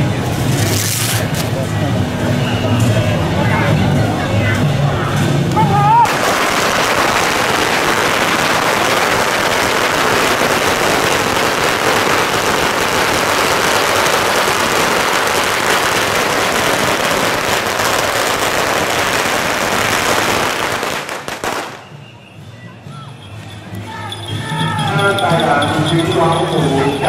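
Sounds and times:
firecrackers crackling: 0.0s - 2.2s, 5.1s - 22.3s.

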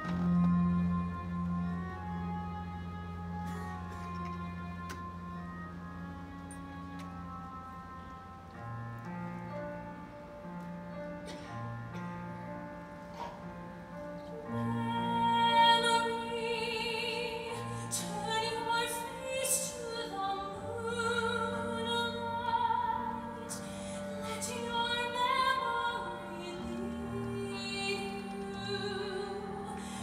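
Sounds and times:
orchestra holding low notes: 0.0s - 30.0s
woman singing a ballad: 14.5s - 30.0s.

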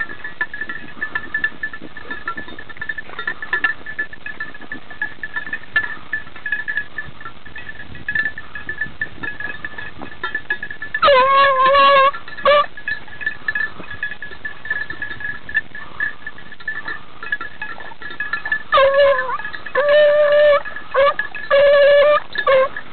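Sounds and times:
dog baying: 11.0s - 12.8s, 17.7s - 22.8s.

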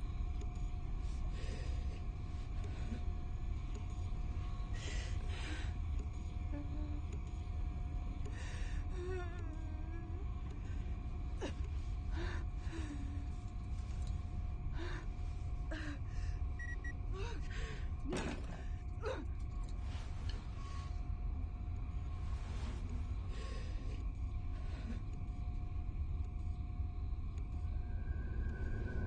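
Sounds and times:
faint high hum: 0.0s - 29.0s
low rumble: 0.0s - 29.0s
woman gasping and whimpering: 17.1s - 18.4s.

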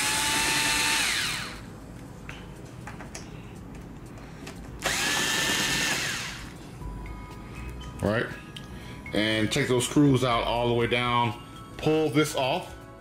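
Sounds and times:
cordless screwdriver motor whine: 0.0s - 1.6s, 4.8s - 6.5s.

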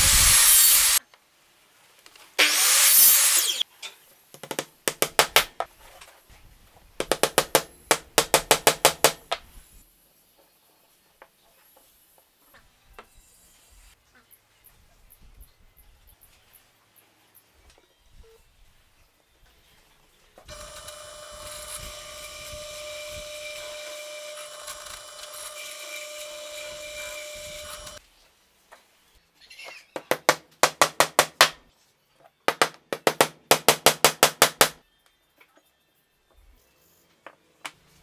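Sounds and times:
hammer knocking a wooden dowel: 4.4s - 5.7s, 7.0s - 9.4s, 32.5s - 34.8s
drill press boring into wood: 20.5s - 28.0s.

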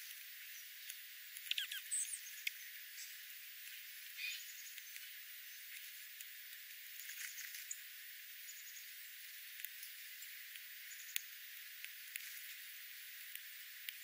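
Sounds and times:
birds pecking on gravel: 0.0s - 14.0s
short bird chip calls: 1.4s - 2.7s, 4.2s - 4.7s.

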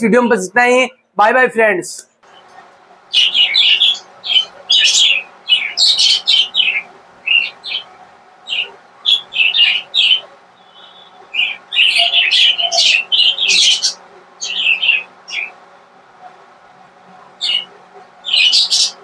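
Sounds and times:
budgerigars chirping and chattering: 2.3s - 15.6s, 17.3s - 19.0s.

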